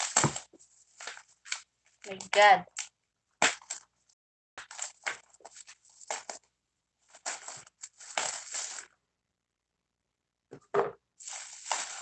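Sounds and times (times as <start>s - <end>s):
scissors cutting bubble wrap: 0.0s - 3.8s, 4.6s - 6.4s, 7.1s - 8.9s, 11.2s - 12.0s
bubble wrap crinkling: 0.0s - 3.9s, 4.6s - 9.0s, 11.2s - 12.0s.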